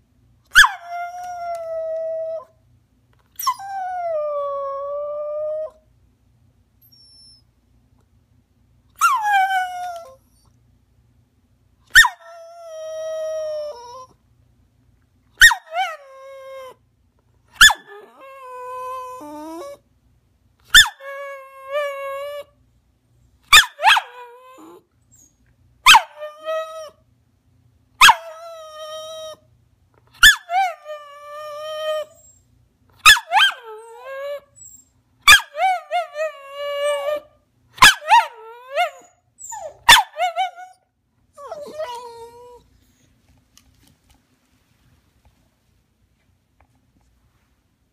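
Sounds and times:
dog whining and yipping: 0:00.5 - 0:02.5, 0:03.3 - 0:05.8, 0:06.8 - 0:07.5, 0:09.0 - 0:10.6, 0:11.9 - 0:14.1, 0:15.4 - 0:16.8, 0:17.5 - 0:19.8, 0:20.7 - 0:22.5, 0:23.5 - 0:27.0, 0:28.0 - 0:29.4, 0:30.2 - 0:40.8, 0:41.4 - 0:42.7.

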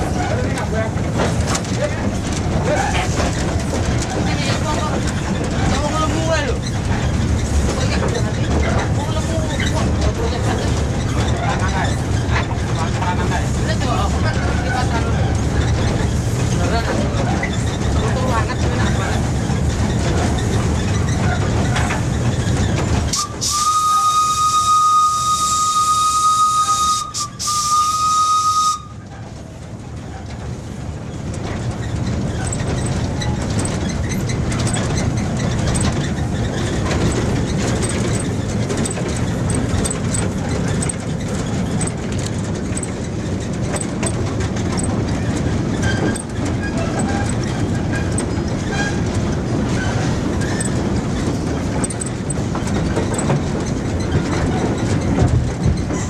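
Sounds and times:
train wheels rumbling on rails: 0:00.0 - 0:56.0
steam locomotive whistle: 0:23.1 - 0:29.0.

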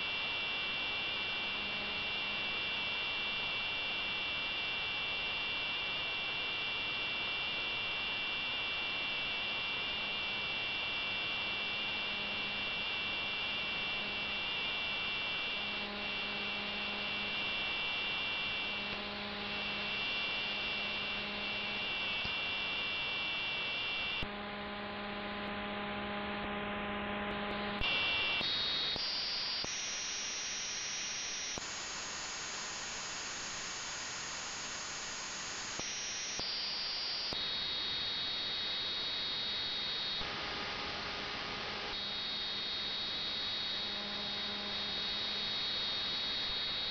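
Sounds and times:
steady radio hiss: 0:27.9 - 0:46.9.

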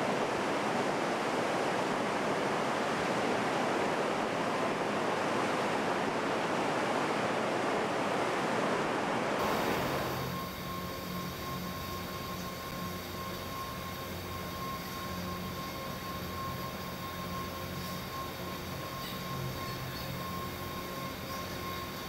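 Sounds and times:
water rushing and churning: 0:00.0 - 0:10.7
low hum with high whine: 0:00.0 - 0:22.0.

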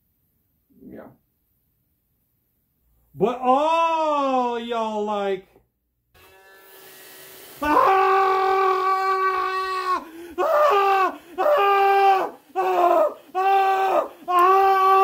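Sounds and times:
person wailing: 0:07.6 - 0:15.0.

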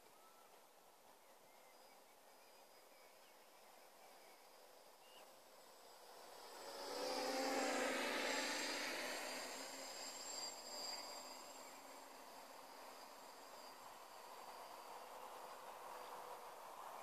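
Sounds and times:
drone propellers buzzing: 0:05.6 - 0:17.0.

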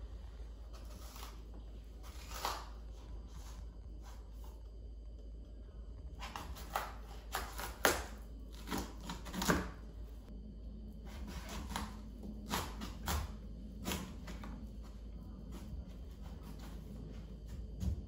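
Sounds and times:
knife crunching through squash rind: 0:00.7 - 0:03.0, 0:06.2 - 0:09.9, 0:11.1 - 0:14.6.

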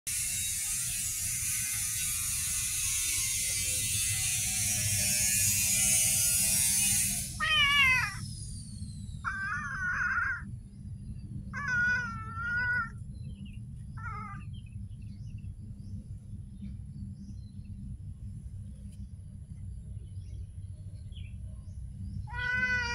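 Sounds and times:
cat meowing: 0:07.4 - 0:08.2, 0:11.6 - 0:13.0, 0:22.3 - 0:22.9.

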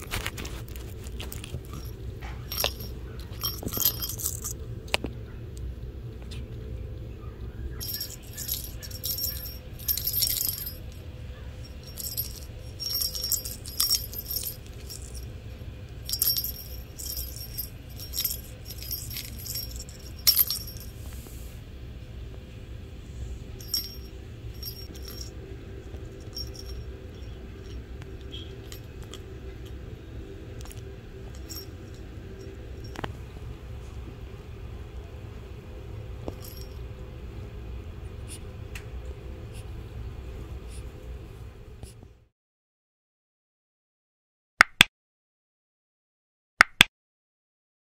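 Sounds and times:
bell jingling in plastic ball: 0:00.0 - 0:04.7, 0:07.8 - 0:21.1, 0:23.4 - 0:33.3, 0:36.2 - 0:36.9.

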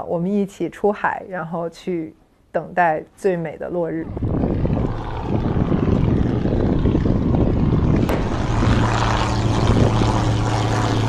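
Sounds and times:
propeller plane engine droning: 0:03.9 - 0:11.0
even rushing noise: 0:04.0 - 0:11.0.

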